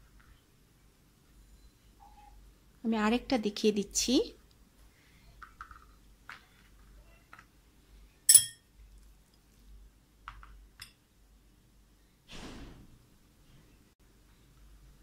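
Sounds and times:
metal utensil clinking a bowl: 8.3 - 8.6.

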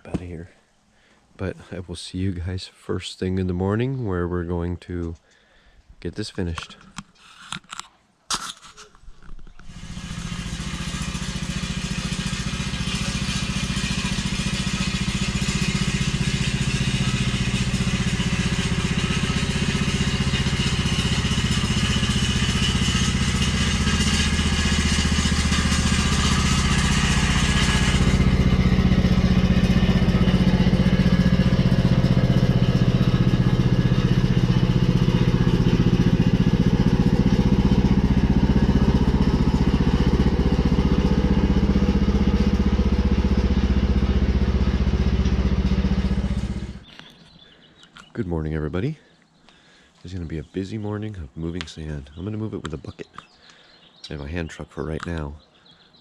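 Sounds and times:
lawn tractor engine running: 9.3 - 47.2.

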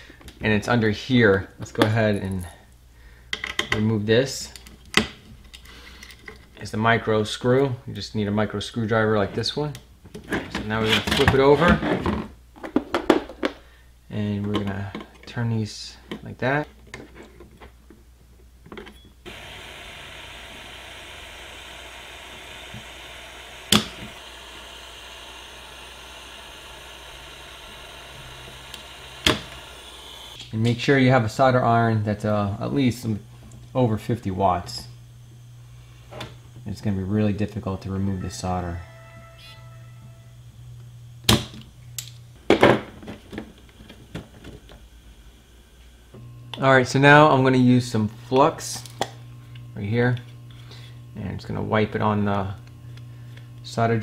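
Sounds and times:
low hum: 19.2 - 30.7
hot air blower hissing: 19.2 - 38.7, 43.3 - 54.0
desoldering pump snapping: 19.3 - 30.8, 40.8 - 42.2.

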